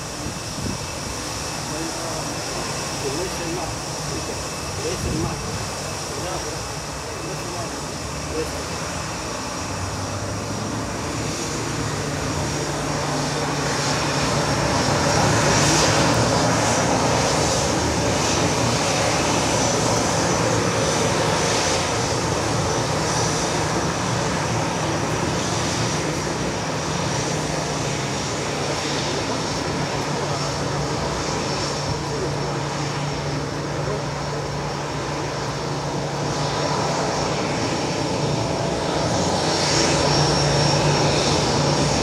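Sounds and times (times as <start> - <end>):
jet engines taxiing: 0.0 - 42.0.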